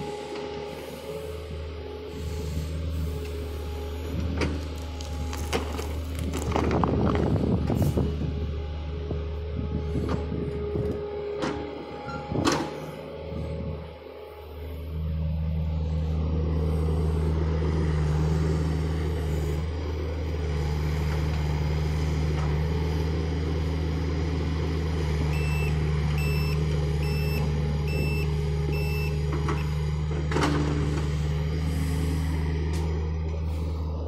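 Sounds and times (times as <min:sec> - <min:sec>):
excavator diesel engine running: 0:00.0 - 0:34.0
short alarm beeps: 0:25.3 - 0:29.7.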